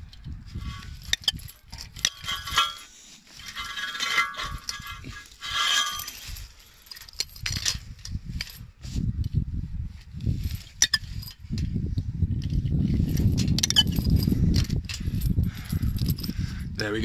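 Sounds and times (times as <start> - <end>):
chain and padlock rattling: 0.0 - 9.4, 10.2 - 17.0.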